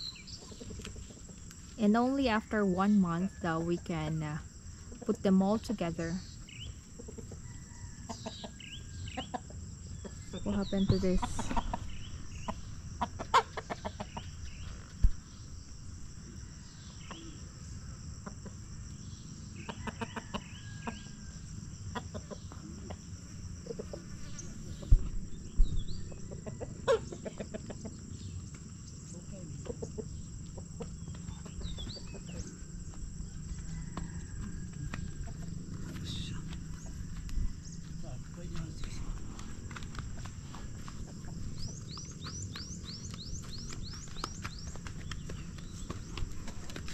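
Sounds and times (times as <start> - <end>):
high drone of insects: 0.0 - 46.9
chickens clucking: 0.3 - 1.6, 6.7 - 14.4, 19.6 - 21.0, 21.9 - 25.2, 26.0 - 28.6, 29.5 - 32.7.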